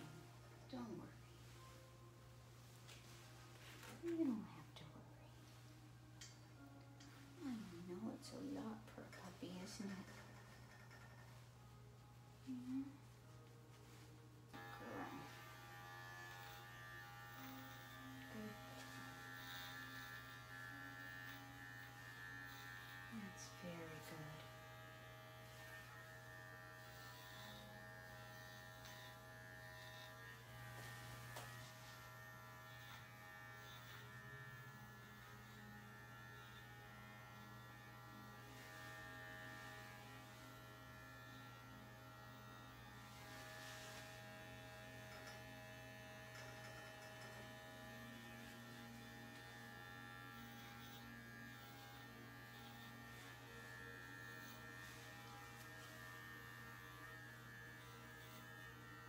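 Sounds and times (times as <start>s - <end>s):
electric clippers humming: 14.5s - 59.0s.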